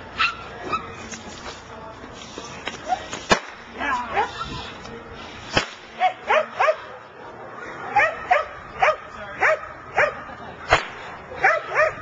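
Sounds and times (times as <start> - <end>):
sharp crack: 3.1 - 3.7, 5.5 - 6.0, 10.7 - 11.2
dog barking and yipping: 11.4 - 12.0.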